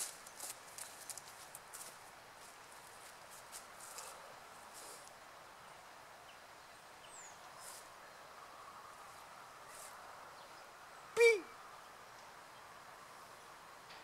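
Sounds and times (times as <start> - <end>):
soft rustles: 0.0 - 5.2.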